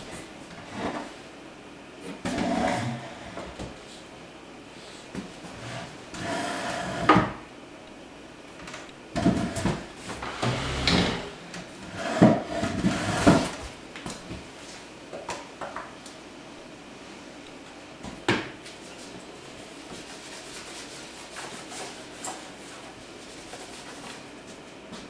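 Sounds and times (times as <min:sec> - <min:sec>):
wooden furniture being moved: 0:09.2 - 0:11.4.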